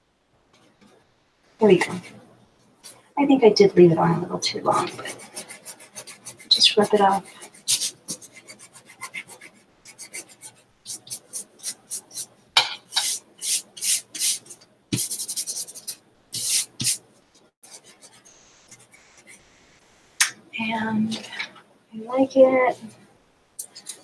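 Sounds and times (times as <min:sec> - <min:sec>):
hands rubbing on paper: 0:04.8 - 0:12.3, 0:12.9 - 0:19.5.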